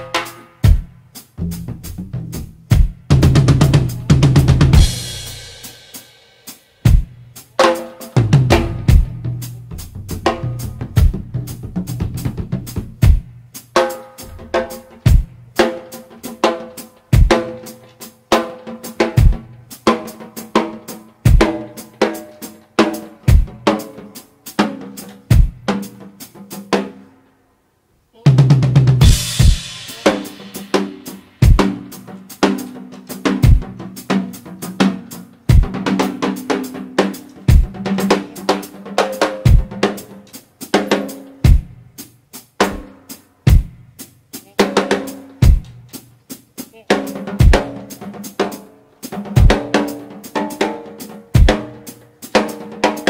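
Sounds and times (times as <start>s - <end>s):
drum kit solo: 0.0s - 27.2s, 28.1s - 53.0s
cymbal crash: 29.0s - 31.8s.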